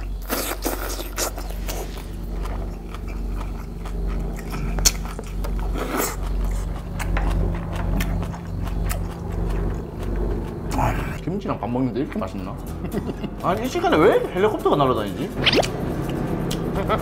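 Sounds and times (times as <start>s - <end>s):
close-miked chewing: 0.0s - 11.2s
helicopter drone overhead: 1.4s - 11.2s, 15.3s - 17.0s
sharp mouth clicks: 3.0s - 7.1s.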